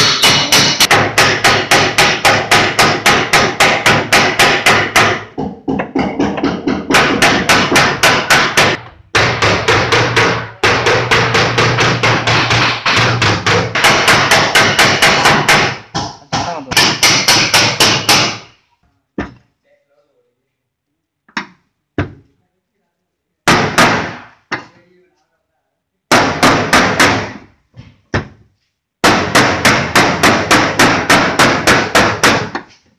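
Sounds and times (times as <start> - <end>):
hammering on sheet metal: 0.0 - 18.6, 23.5 - 24.7, 26.1 - 27.6, 29.0 - 32.7.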